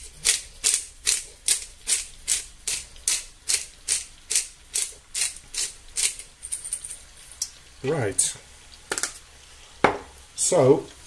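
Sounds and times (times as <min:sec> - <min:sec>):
pepper grinder grinding: 0:00.0 - 0:07.0.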